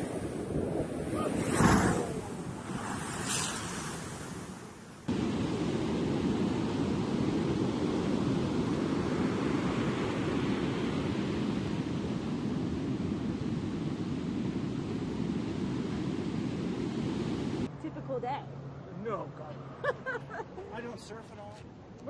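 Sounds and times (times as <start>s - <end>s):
wave crashing against seawall: 0.0s - 11.8s
heavy surf breaking on beach: 0.0s - 17.7s.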